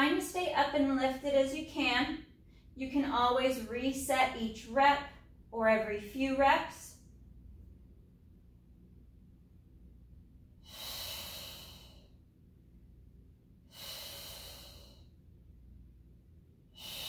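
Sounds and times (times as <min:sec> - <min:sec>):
woman exhaling with a hiss: 0:10.6 - 0:12.1, 0:13.7 - 0:15.1, 0:16.7 - 0:17.0.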